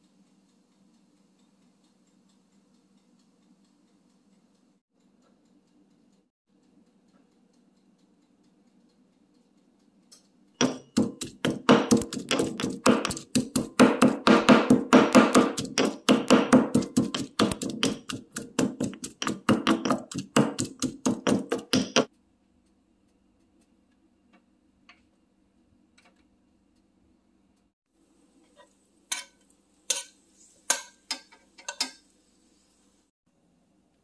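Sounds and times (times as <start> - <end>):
pestle pounding in stone mortar: 10.6 - 22.1.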